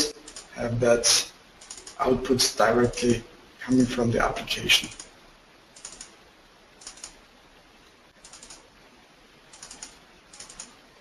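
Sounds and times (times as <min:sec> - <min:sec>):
computer keyboard and mouse clicking: 0:00.2 - 0:00.5, 0:01.6 - 0:02.0, 0:04.8 - 0:05.1, 0:05.7 - 0:06.2, 0:06.8 - 0:07.2, 0:08.2 - 0:08.7, 0:09.5 - 0:10.8.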